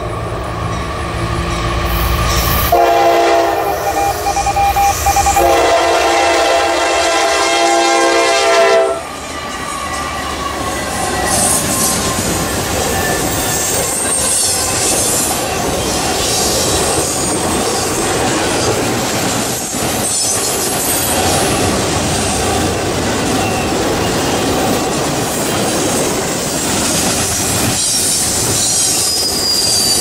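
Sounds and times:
locomotive air horn chord: 2.6s - 9.1s
train wheels clattering on rails: 9.0s - 30.0s.

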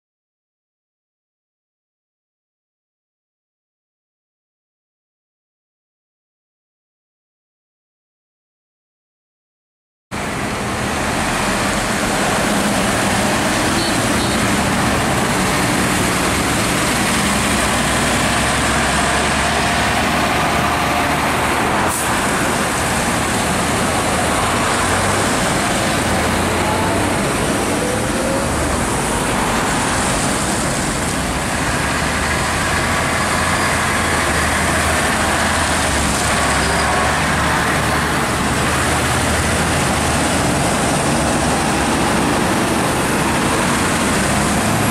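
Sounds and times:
tractor engines running: 10.2s - 44.9s
tyres on wet tarmac: 10.2s - 44.9s.

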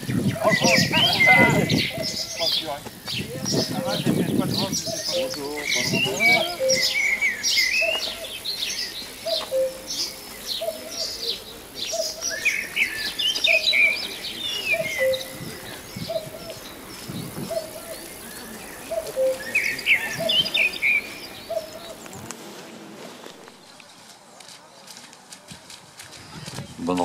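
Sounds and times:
songbirds chirping and trilling: 0.0s - 27.0s
dove cooing: 3.5s - 22.0s.

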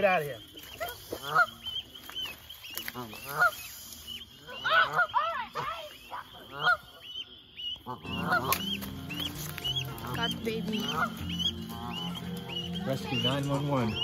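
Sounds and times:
goose honking: 0.6s - 14.0s
high falling peeps: 4.1s - 14.0s.

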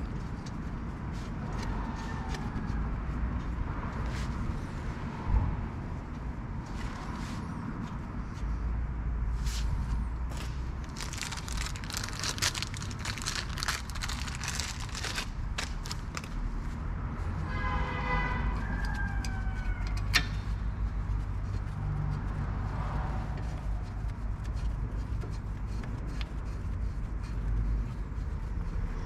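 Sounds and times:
steady low rumble: 0.0s - 17.5s.

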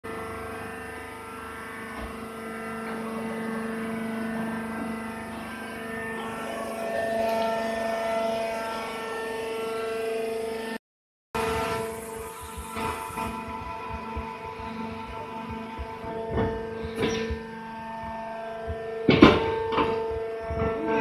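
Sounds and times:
baling machine humming: 0.1s - 10.8s, 11.4s - 21.0s.

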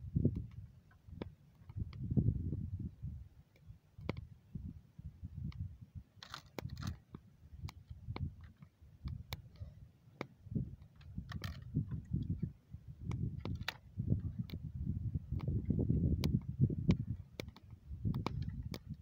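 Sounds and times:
sharp snaps and pops: 5.4s - 9.6s, 13.0s - 14.7s, 15.3s - 15.6s, 16.2s - 19.0s.

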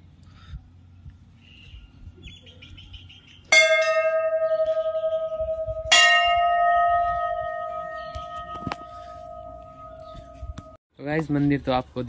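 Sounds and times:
temple bell ringing: 3.5s - 10.8s.

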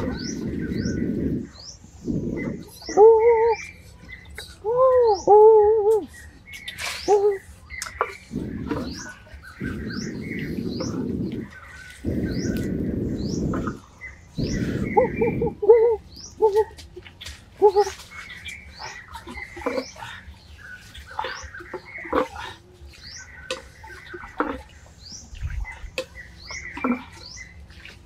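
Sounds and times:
birds chirping and calling: 0.0s - 28.0s
low rumble: 8.2s - 16.2s.

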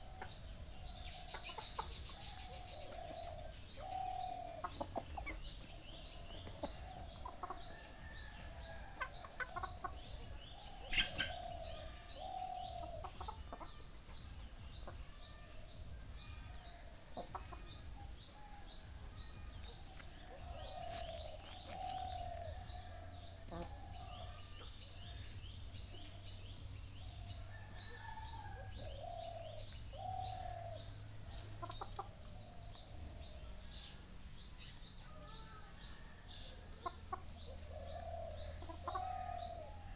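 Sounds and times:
chickens clucking: 0.0s - 15.6s, 16.5s - 24.8s, 31.4s - 33.2s, 36.7s - 39.4s.

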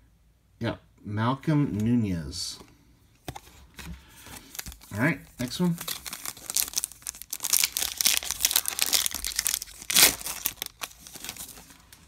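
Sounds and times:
foil wrapper crinkling: 4.3s - 12.0s
foil wrapper tearing: 4.6s - 12.0s.

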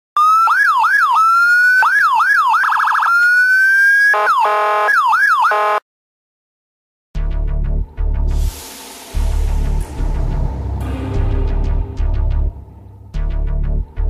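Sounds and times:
police siren: 0.2s - 5.8s
buzzy horn blasts: 4.2s - 4.9s.

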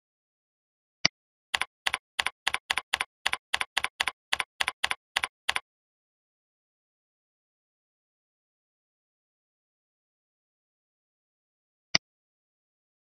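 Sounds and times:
keyboard typing: 1.5s - 5.6s.

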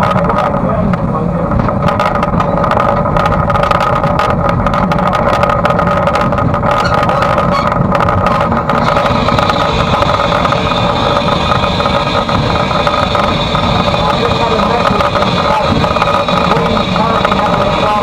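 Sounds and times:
rapid rattling and knocking: 0.0s - 18.0s
steady steam hiss: 8.8s - 18.0s.

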